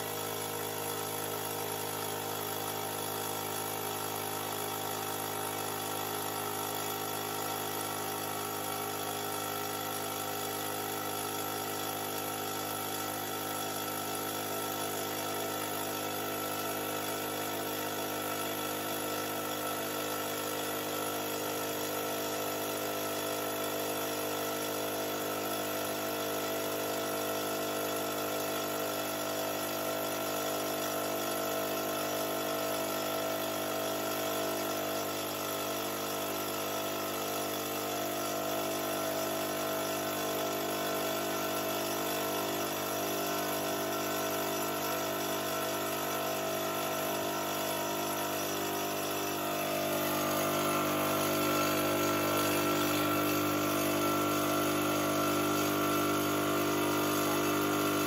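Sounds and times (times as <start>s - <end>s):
air compressor running: 0.0s - 58.0s.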